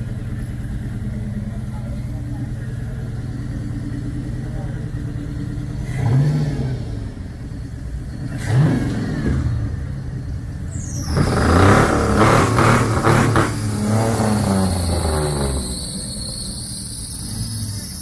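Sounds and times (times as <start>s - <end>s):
car engine idling and revving: 0.0s - 18.0s.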